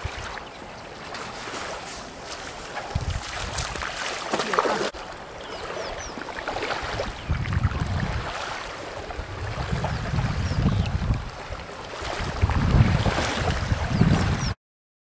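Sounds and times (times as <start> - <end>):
water lapping at shore: 0.0 - 14.6
wind buffeting microphone: 1.4 - 4.2, 5.4 - 14.6.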